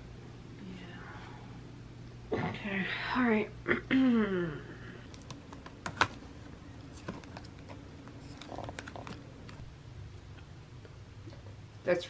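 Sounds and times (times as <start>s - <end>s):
photo prints being leafed through: 6.8s - 9.6s.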